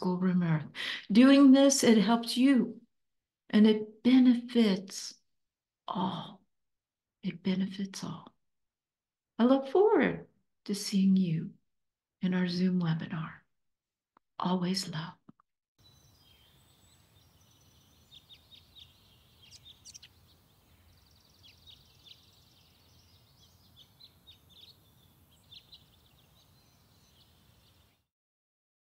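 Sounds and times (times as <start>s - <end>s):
birdsong chirps and trills: 15.8s - 28.0s.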